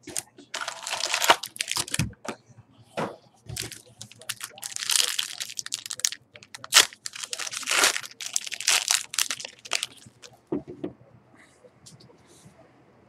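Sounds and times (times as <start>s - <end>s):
foil wrapper crinkling and tearing: 0.0s - 2.0s, 3.5s - 10.3s.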